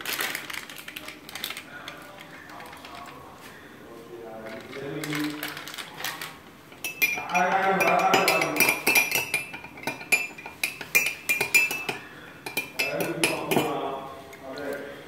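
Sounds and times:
spoon clinking in a glass: 0:06.7 - 0:13.8.

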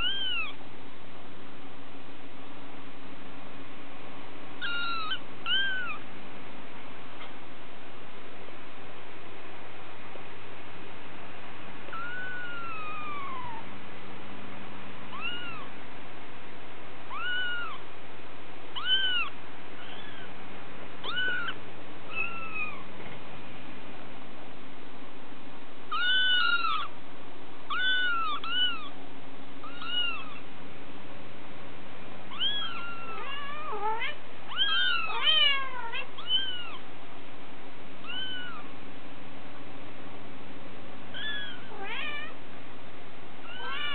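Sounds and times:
kittens mewing: 0:00.0 - 0:00.6, 0:04.6 - 0:06.0, 0:11.9 - 0:13.7, 0:15.1 - 0:15.7, 0:17.1 - 0:17.8, 0:18.8 - 0:20.4, 0:21.0 - 0:22.9, 0:25.9 - 0:26.9, 0:27.7 - 0:29.0, 0:29.6 - 0:30.5, 0:32.3 - 0:36.9, 0:38.0 - 0:38.7, 0:41.1 - 0:42.4, 0:43.4 - 0:43.9.

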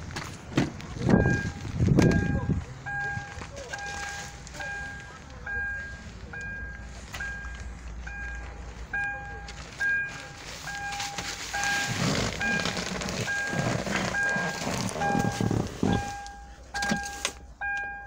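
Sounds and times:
car warning chime beeping: 0:01.1 - 0:18.0
rustling: 0:09.4 - 0:17.4.

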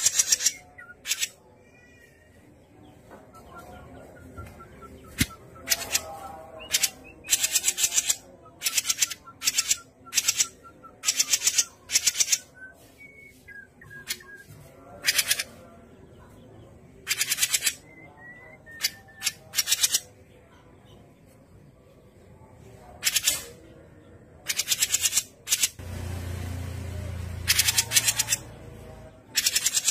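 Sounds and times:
bird harsh rattling chatter: 0:00.0 - 0:01.4, 0:06.7 - 0:12.5, 0:17.0 - 0:17.8, 0:24.4 - 0:25.8, 0:27.5 - 0:28.4, 0:29.3 - 0:29.9
faint whistled bird notes: 0:12.5 - 0:14.9.

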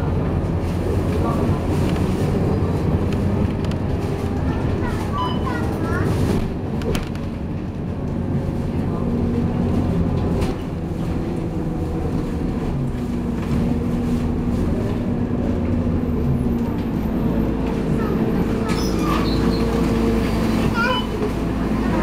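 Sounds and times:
bus diesel engine droning: 0:00.0 - 0:22.0.

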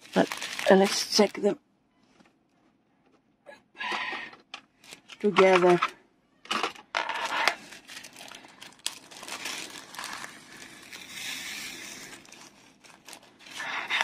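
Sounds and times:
plastic bag crinkling: 0:00.0 - 0:01.5, 0:07.0 - 0:14.0
small beads pouring into plastic tray: 0:09.1 - 0:13.3.

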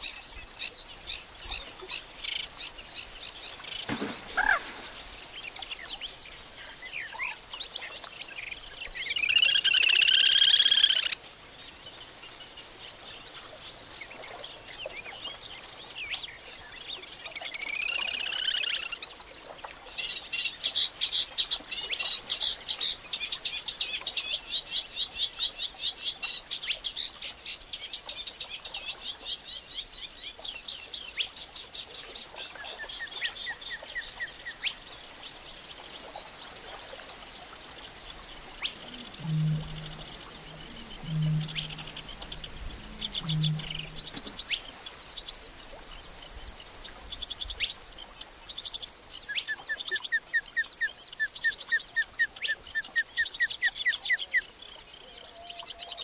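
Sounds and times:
high chirping trills: 0:38.5 - 0:44.7
high warbling bird phrase: 0:38.6 - 0:44.3.

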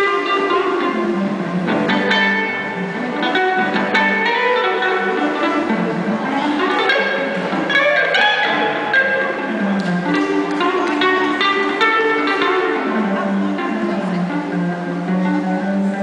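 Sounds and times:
electric jazz guitar melody: 0:00.0 - 0:16.0.

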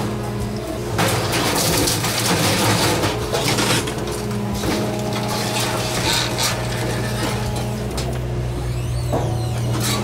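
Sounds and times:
excavator engine and hydraulics humming: 0:00.0 - 0:10.0
debris crunching and cracking: 0:01.0 - 0:07.7.

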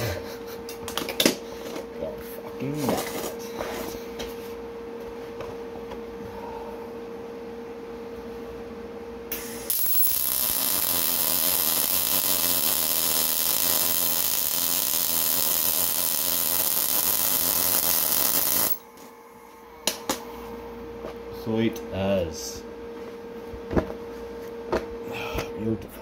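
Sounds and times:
welder arc buzzing: 0:09.3 - 0:18.9.

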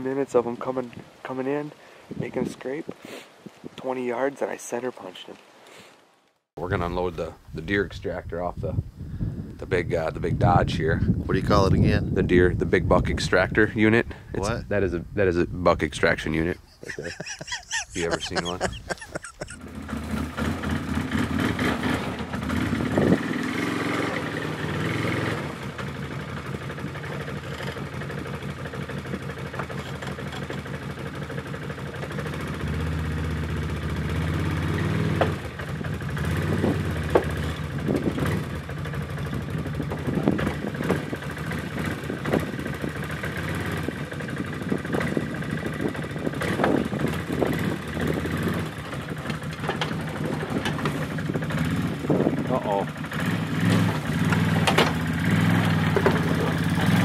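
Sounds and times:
engine idling and revving: 0:19.6 - 0:57.0.

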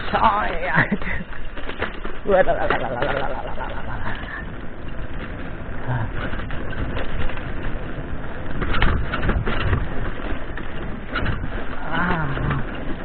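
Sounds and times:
bike rattling: 0:00.0 - 0:13.0
tyres rumbling on gravel: 0:00.0 - 0:13.0.

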